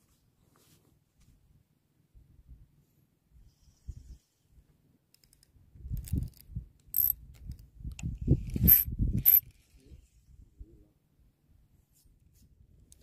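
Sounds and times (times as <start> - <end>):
fishing reel clicking and rattling: 7.0 - 7.2, 8.5 - 9.5.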